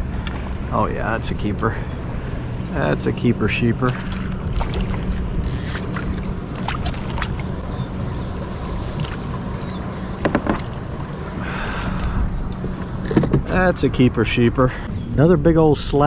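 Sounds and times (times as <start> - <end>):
low rumble: 0.0 - 16.0
fish thrashing and splashing: 3.9 - 7.6.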